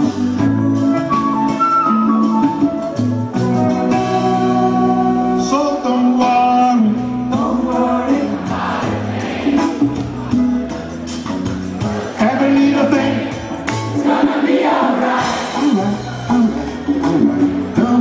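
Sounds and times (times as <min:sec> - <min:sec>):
live band playing: 0:00.0 - 0:18.0
voices singing in chorus: 0:07.3 - 0:09.9, 0:12.2 - 0:16.1.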